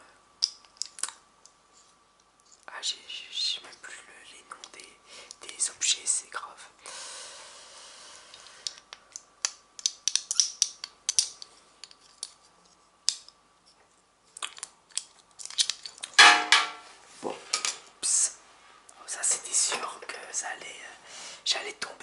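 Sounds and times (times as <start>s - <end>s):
metal badges clicking: 9.4s - 12.0s.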